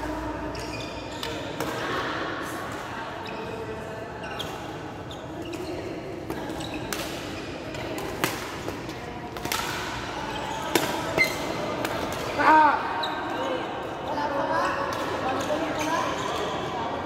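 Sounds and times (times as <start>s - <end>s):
murmur of voices: 0.0s - 17.0s
shoes squeaking on floor: 0.5s - 1.4s, 4.2s - 7.6s, 10.3s - 11.6s, 15.3s - 16.8s
rackets hitting shuttlecock: 6.2s - 12.4s.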